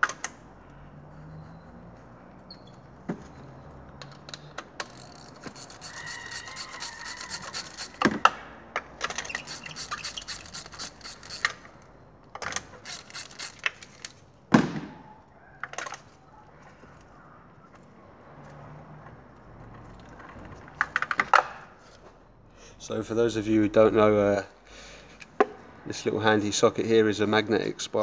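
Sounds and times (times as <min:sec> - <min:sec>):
ratchet clicking: 0:04.8 - 0:08.2, 0:09.1 - 0:11.9, 0:12.8 - 0:14.2.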